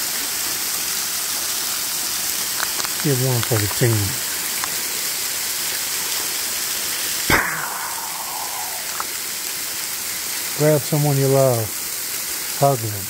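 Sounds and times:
waterfall splashing onto rock: 0.0s - 13.0s
sharp knock: 7.3s - 9.1s.

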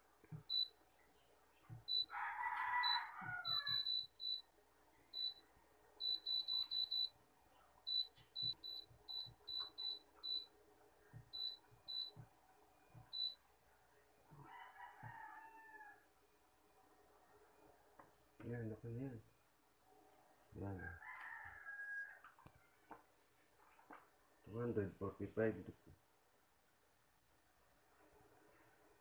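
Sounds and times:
short high beeps: 6.0s - 7.1s, 7.9s - 10.5s.

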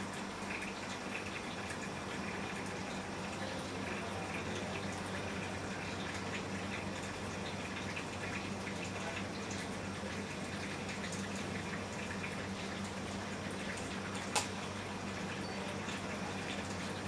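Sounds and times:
aquarium pump hum: 0.0s - 17.0s
aquarium water bubbling: 0.0s - 17.0s
sharp click: 14.3s - 14.5s.

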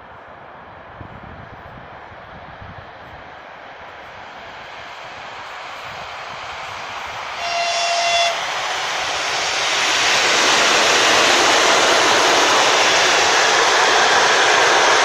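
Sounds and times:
train wheels rushing on rails: 0.0s - 15.0s
train horn blast: 7.4s - 8.5s.

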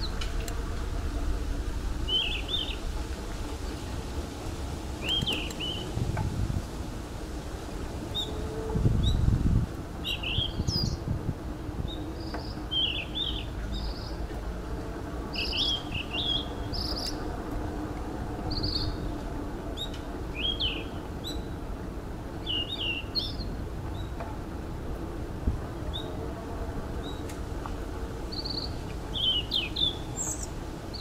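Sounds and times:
bicycle rolling noise: 0.0s - 31.0s
wind rumble: 0.0s - 31.0s
small birds chirping: 5.0s - 5.9s, 15.3s - 17.2s, 28.3s - 31.0s.

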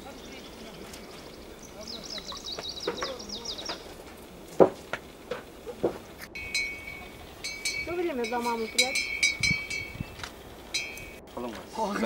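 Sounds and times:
songbirds singing: 0.0s - 11.5s
sharp knocks: 2.5s - 3.9s, 4.6s - 7.0s.

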